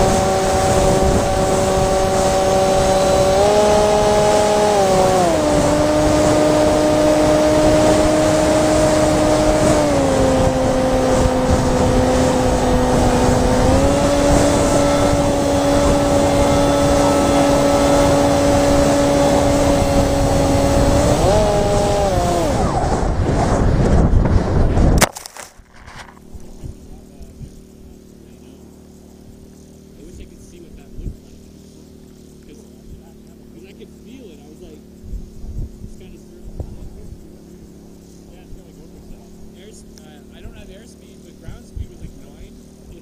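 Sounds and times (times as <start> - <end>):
wind rushing over microphone: 0.0 - 28.0, 30.1 - 31.4, 34.6 - 37.5, 41.4 - 43.0
electric motor and propeller whining: 0.0 - 43.0
model plane hitting ground: 21.4 - 26.6.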